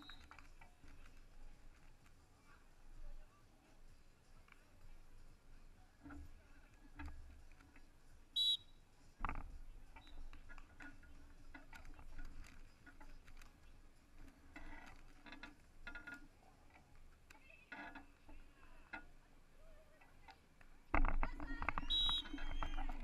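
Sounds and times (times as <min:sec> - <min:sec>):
referee's whistle blast: 0:08.4 - 0:08.6, 0:21.8 - 0:22.5.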